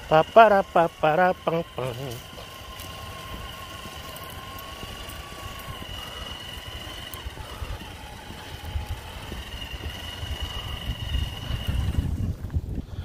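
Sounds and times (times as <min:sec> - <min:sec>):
rc truck motor whine: 0:00.0 - 0:13.0
low microphone rumble: 0:07.3 - 0:13.0.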